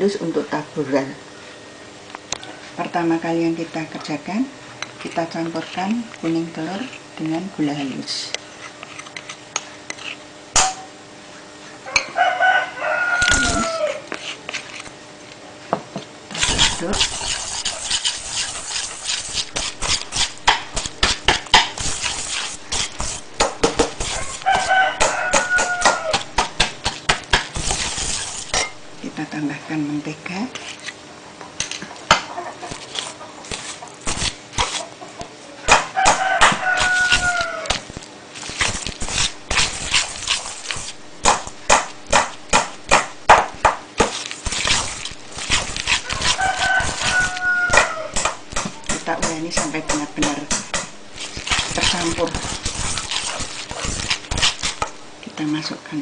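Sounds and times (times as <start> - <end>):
whisk clicking against bowl: 16.4 - 28.7, 44.1 - 55.0.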